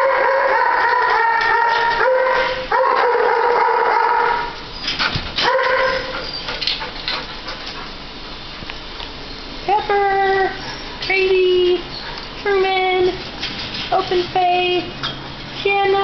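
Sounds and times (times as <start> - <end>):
dog howling and whining: 0.0 - 6.8.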